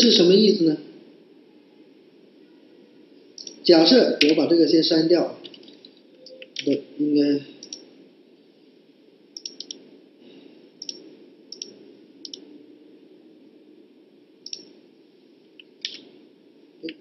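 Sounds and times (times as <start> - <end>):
faint room hum: 0.0 - 17.0
computer mouse clicking: 3.4 - 3.6, 7.6 - 7.8, 9.4 - 9.8, 10.8 - 12.4, 14.4 - 14.7, 15.6 - 16.1.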